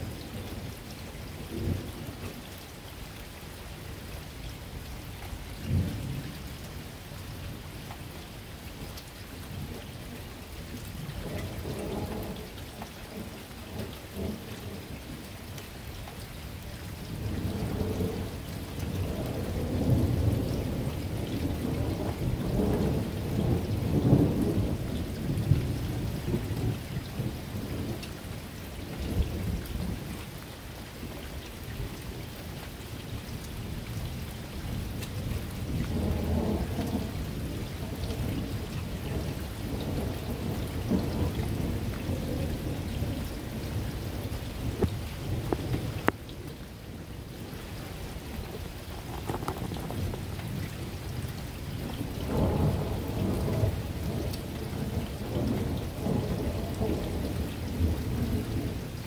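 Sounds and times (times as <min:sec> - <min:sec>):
steady rain: 0:00.0 - 0:59.0
rolling thunder: 0:11.0 - 0:12.5, 0:17.1 - 0:28.0, 0:34.7 - 0:47.5, 0:48.3 - 0:59.0.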